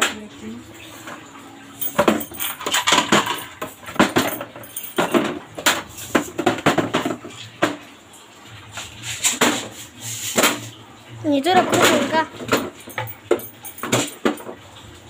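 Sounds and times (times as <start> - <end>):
plastic containers clattering: 1.0 - 7.9, 11.5 - 14.6.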